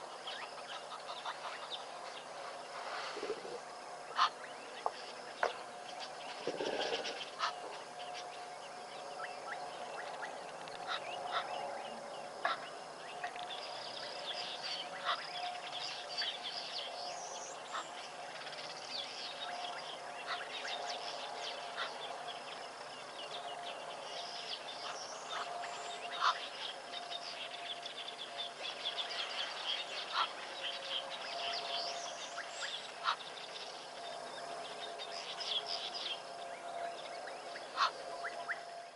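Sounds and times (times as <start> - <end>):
birds chirping: 0.0 - 38.9
faint hum: 0.0 - 38.9.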